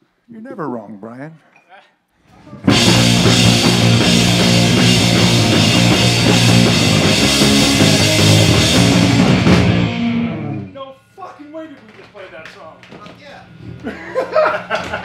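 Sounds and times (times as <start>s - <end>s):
drum kit: 2.5s - 10.7s
bass guitar: 2.6s - 10.8s
electric guitar: 2.6s - 10.8s.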